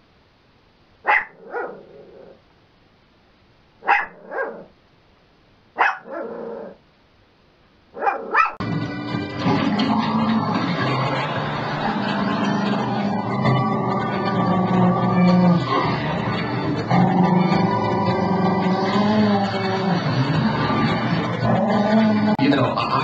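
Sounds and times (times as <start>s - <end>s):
small dog barking: 1.0s - 2.4s, 3.8s - 4.8s, 5.8s - 6.8s, 8.0s - 8.6s.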